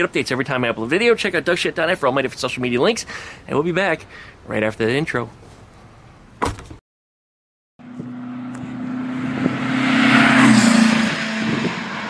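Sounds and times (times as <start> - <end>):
vehicle engine humming: 7.8 - 12.0.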